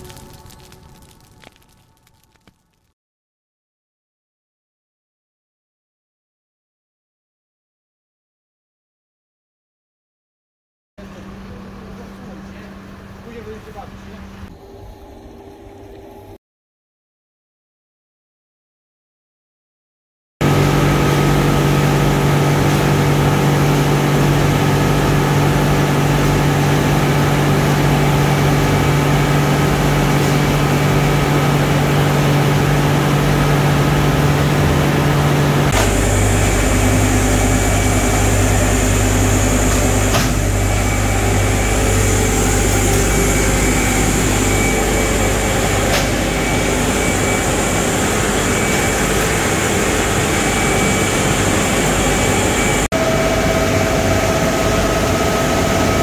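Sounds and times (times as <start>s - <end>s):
industrial machinery drone: 20.4s - 56.0s
deep rumble with airy hiss: 27.2s - 46.9s.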